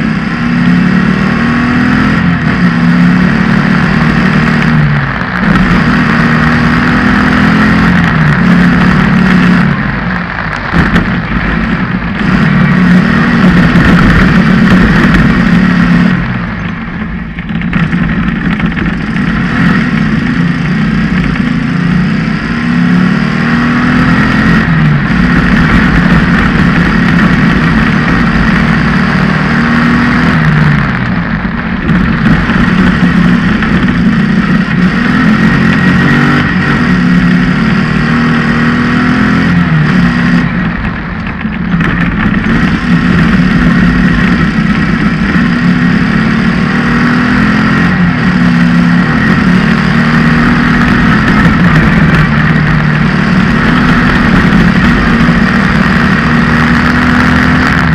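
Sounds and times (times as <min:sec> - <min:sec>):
buggy engine running hard: 0:00.0 - 0:57.9.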